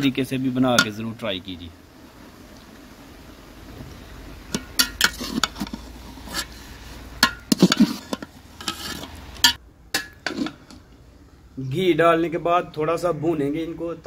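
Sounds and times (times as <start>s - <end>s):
metal spatula scraping pot: 4.5s - 10.9s.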